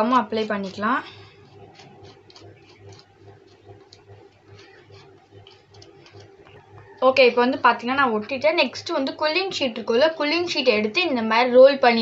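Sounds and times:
low pulsing hum: 0.0 - 12.0
glue brush scratching on cardboard: 0.3 - 6.6.

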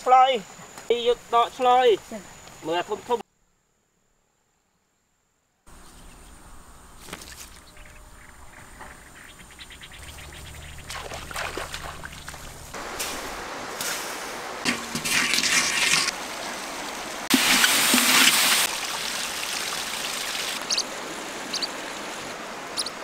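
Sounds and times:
running splashing water: 8.2 - 23.0.

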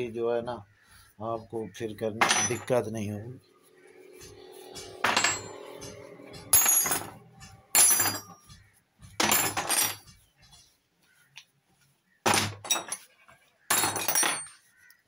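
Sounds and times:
metal spanners clinking on wood: 2.2 - 3.0, 4.2 - 10.2, 12.3 - 13.1, 13.7 - 14.7.

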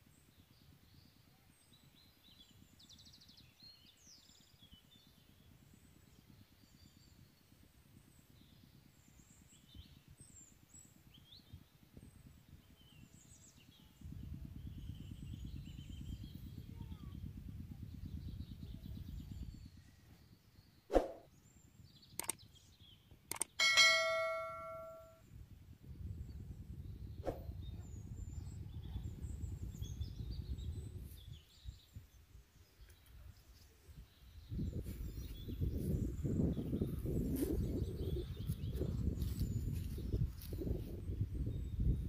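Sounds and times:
small birds chirping: 0.1 - 25.2, 26.2 - 42.0
wind rumble on microphone: 0.5 - 22.1, 25.2 - 42.0.

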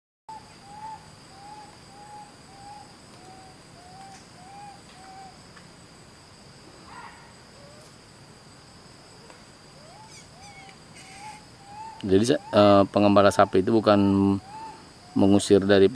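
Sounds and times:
short hooting calls: 0.3 - 5.4, 9.8 - 15.5
high-pitched insect drone: 0.3 - 5.6, 8.6 - 15.9.

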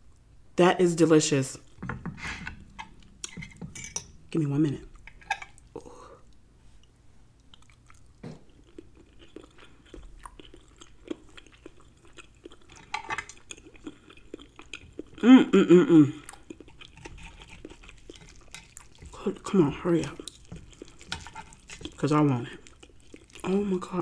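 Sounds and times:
wet chewing mouth clicks: 5.0 - 15.2.

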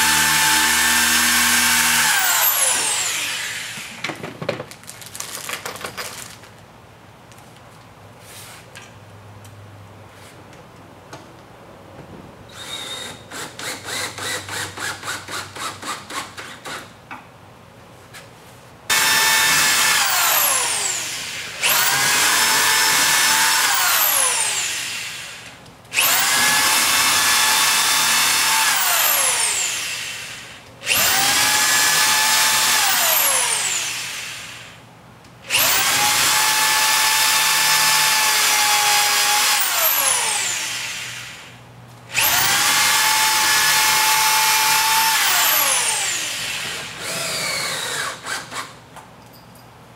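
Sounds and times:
cordless drill pulsing: 0.0 - 4.0, 18.9 - 34.7, 35.5 - 41.5, 42.1 - 48.7
electric drill whining: 0.0 - 4.1, 18.9 - 34.8, 35.5 - 48.7.

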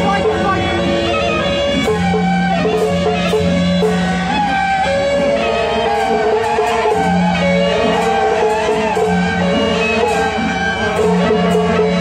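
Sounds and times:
percussion strikes: 0.0 - 12.0
wavering melody: 0.0 - 12.0.

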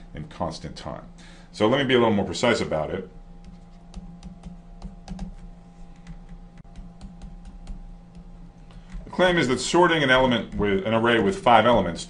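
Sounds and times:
low electrical hum: 0.0 - 12.0
stylus tapping on a tablet: 3.4 - 9.1.

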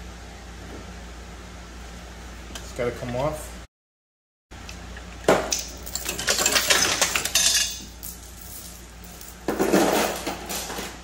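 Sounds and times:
steel chain rattling and clinking: 5.5 - 9.5.

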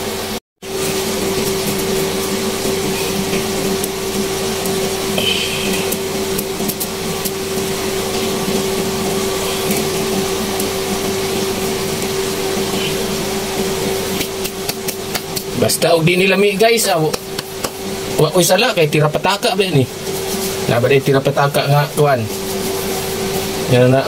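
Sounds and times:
steady motor hum: 0.0 - 24.0
meat sizzling in a wok: 0.6 - 15.6.

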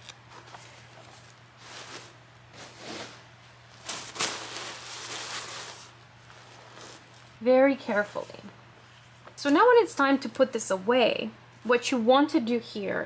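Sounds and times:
book handling noises: 0.0 - 7.4
paper rustling: 0.0 - 7.4.

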